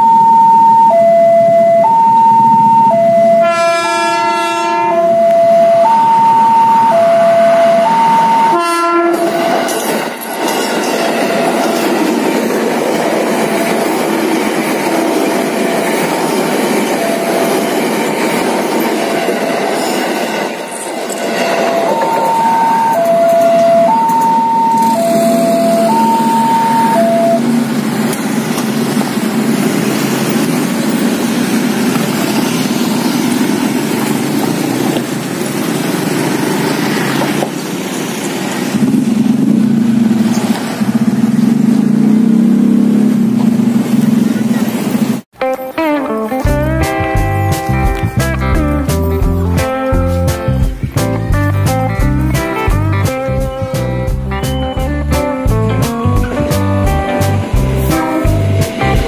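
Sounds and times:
level-crossing two-note alarm: 0.0 - 9.3, 21.3 - 27.6
electric train rumbling past: 0.0 - 45.3, 46.4 - 59.0
train horn blast: 3.3 - 5.9, 6.9 - 9.7, 21.4 - 27.6.

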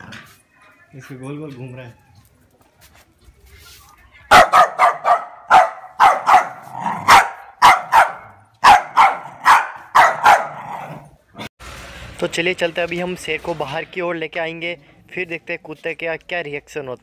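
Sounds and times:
dog barking: 4.3 - 11.0.

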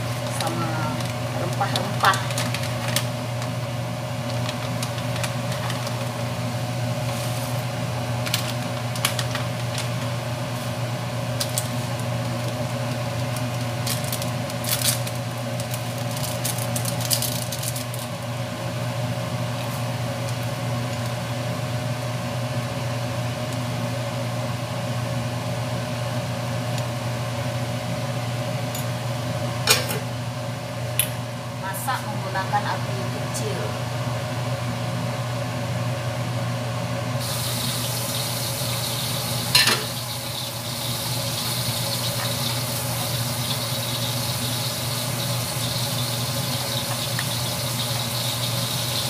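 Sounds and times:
plastic bag crackling: 0.0 - 3.6, 4.2 - 6.2, 8.2 - 10.2, 11.4 - 18.1
electric motor hum: 37.0 - 49.0.

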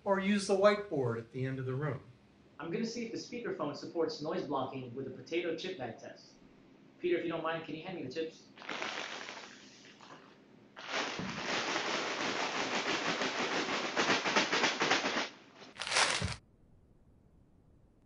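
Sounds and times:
faint hiss: 8.4 - 16.4
chip bag crinkling: 10.8 - 16.4.

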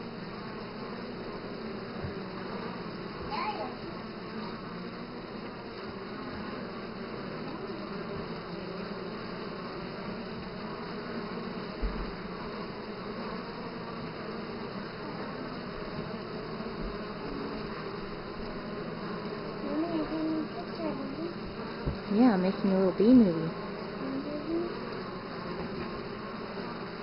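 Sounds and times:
bees buzzing: 0.0 - 27.0
soft low bump: 21.4 - 22.2.

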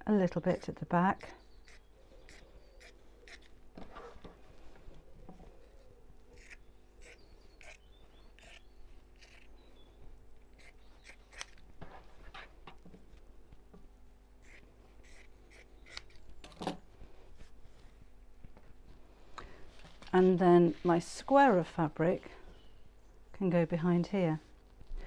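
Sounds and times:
scissors snipping fabric: 10.6 - 11.6.

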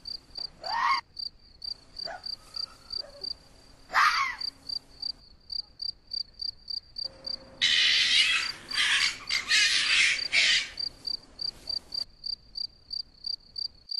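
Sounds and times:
cricket chirping: 0.0 - 13.9.

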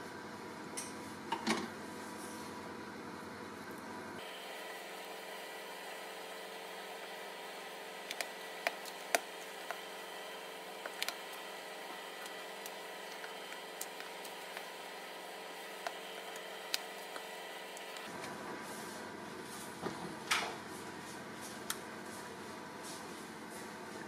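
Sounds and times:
background hiss and hum: 0.0 - 24.0
spatula stirring thick batter: 4.5 - 18.1.

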